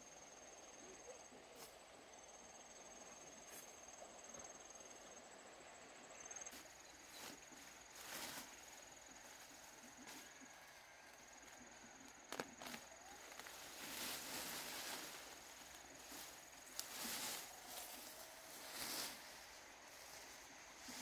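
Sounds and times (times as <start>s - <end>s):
high-pitched insect trill: 0.0s - 21.0s
soft rustling: 12.3s - 21.0s.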